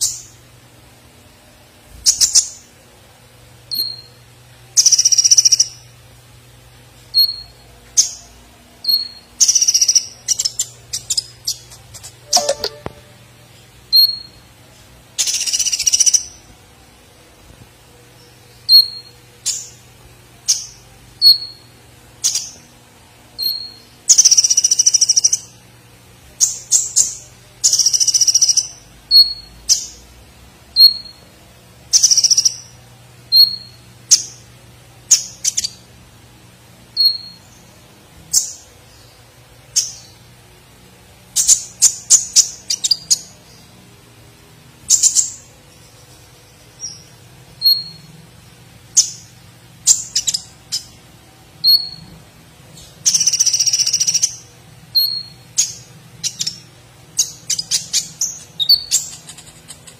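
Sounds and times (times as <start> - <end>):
sunbird singing: 3.7 - 4.2, 4.8 - 5.9, 7.1 - 13.3, 15.2 - 16.4, 18.2 - 19.8, 23.4 - 25.6, 26.4 - 30.0, 31.9 - 34.5, 36.9 - 40.3, 41.4 - 43.8, 44.9 - 48.1, 48.9 - 51.0, 51.6 - 52.1, 52.7 - 59.9
buzzy bird trills: 8.8 - 13.3, 52.8 - 59.9.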